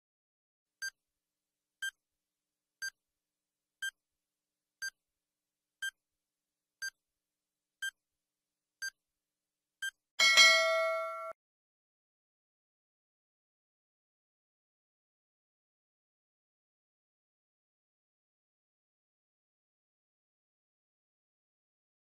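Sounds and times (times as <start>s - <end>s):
timer ticking: 1.8s - 2.0s, 3.8s - 4.0s, 6.8s - 7.0s, 7.8s - 8.0s, 9.8s - 11.4s
ringing alarm: 10.2s - 11.4s.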